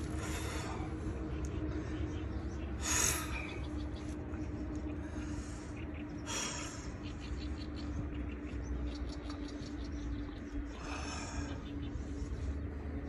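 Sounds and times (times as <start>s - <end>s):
faint steady hum: 0.0s - 13.0s
wind rumble on microphone: 6.8s - 13.0s.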